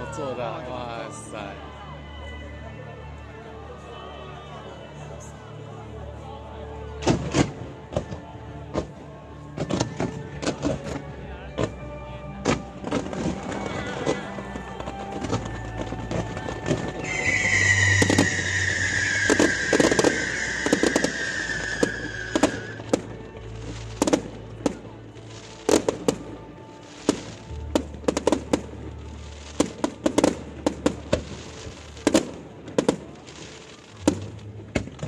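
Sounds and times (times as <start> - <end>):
fireworks bangs and crackles: 7.0 - 11.8, 12.4 - 35.0
falling firework whistle: 16.1 - 23.0.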